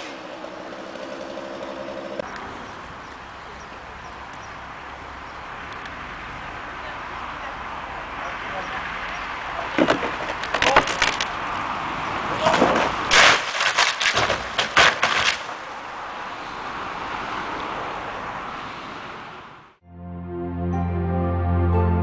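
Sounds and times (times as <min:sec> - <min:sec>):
trunk crashing and splintering: 0:09.7 - 0:11.3, 0:12.3 - 0:15.7
tree trunk cracking: 0:09.8 - 0:11.4, 0:12.4 - 0:15.7.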